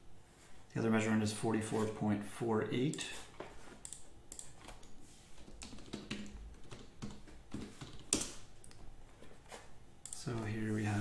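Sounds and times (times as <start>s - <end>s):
computer keyboard typing: 3.8s - 8.4s.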